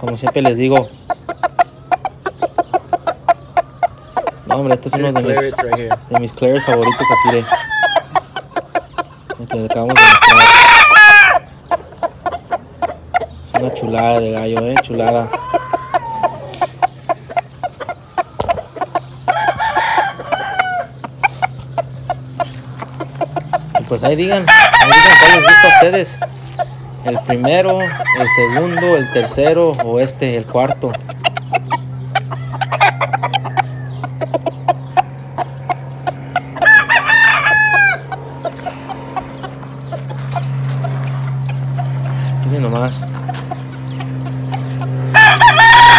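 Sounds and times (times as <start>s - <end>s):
roosters clucking: 0.0s - 45.9s
steady low hum: 0.0s - 45.9s
rooster crowing: 6.5s - 8.2s, 9.9s - 11.5s, 15.0s - 21.5s, 24.3s - 26.2s, 27.5s - 29.5s, 32.2s - 34.1s, 36.4s - 38.2s, 45.1s - 45.9s.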